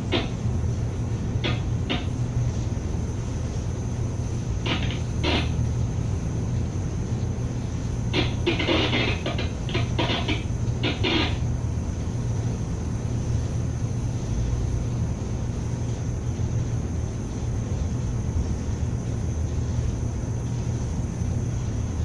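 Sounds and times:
cargo ship low rumble: 0.0s - 17.8s.

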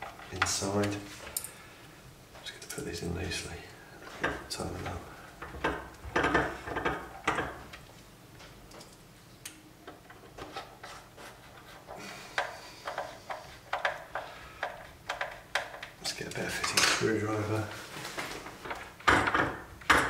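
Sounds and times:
screwdriver knocking and scraping: 9.9s - 16.0s
soft rubbing and scraping: 10.4s - 13.8s, 16.1s - 18.6s.

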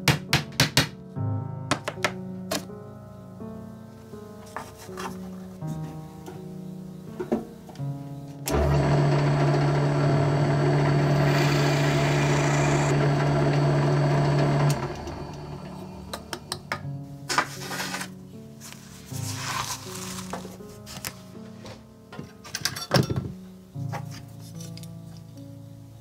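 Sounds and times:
background music: 0.0s - 26.0s
drill press humming: 8.5s - 16.8s.

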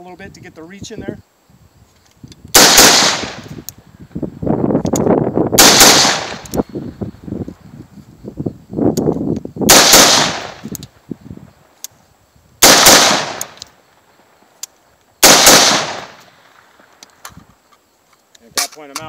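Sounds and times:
rifle shots cracking: 2.5s - 3.6s, 5.6s - 6.6s, 9.7s - 10.7s, 12.6s - 13.8s, 15.2s - 16.7s.

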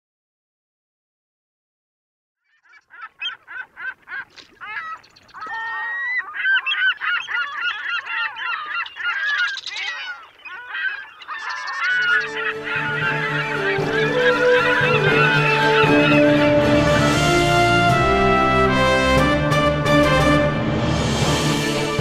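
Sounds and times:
gulls calling: 2.4s - 18.7s.

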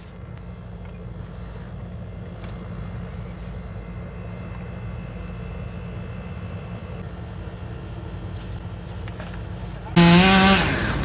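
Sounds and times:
low engine rumble: 0.0s - 10.2s.

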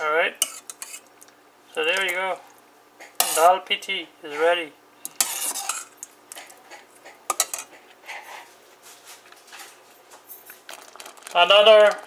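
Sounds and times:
metal ladle clinking on pot: 7.3s - 7.7s.

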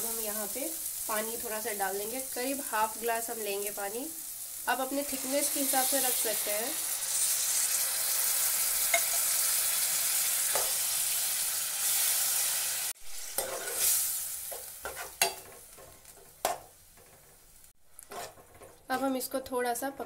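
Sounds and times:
masala sizzling in oil: 0.0s - 20.0s
spoon scraping and clinking pan: 8.9s - 9.2s, 13.4s - 14.0s, 14.8s - 15.8s, 18.0s - 19.1s.

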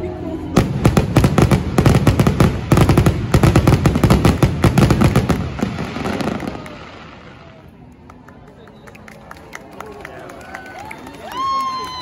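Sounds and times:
fireworks bursting and crackling: 0.5s - 7.6s.

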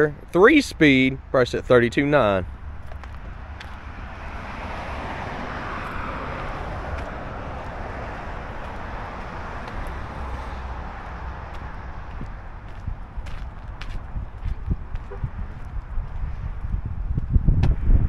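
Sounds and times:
wind rumble on microphone: 2.4s - 18.0s
car passing by: 3.0s - 14.2s.

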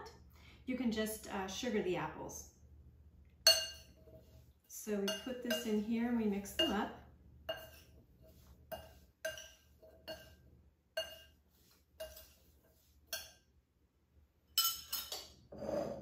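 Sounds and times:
glass dish clinking on bowl: 14.6s - 16.0s.

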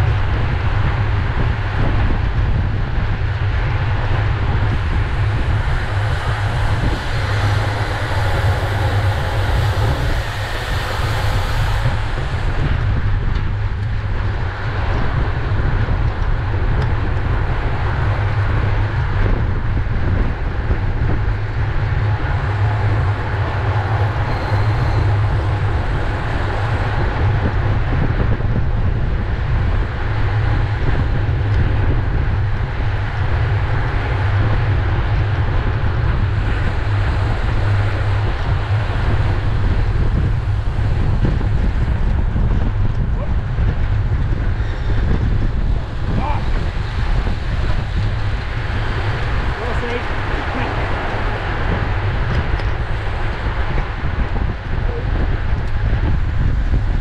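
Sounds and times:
wind buffeting microphone: 0.0s - 57.0s.

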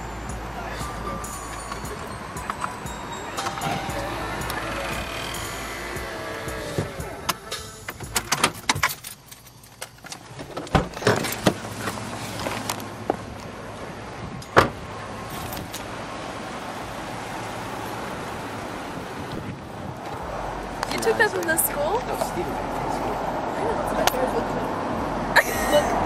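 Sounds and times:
vehicle low hum: 0.0s - 26.0s.

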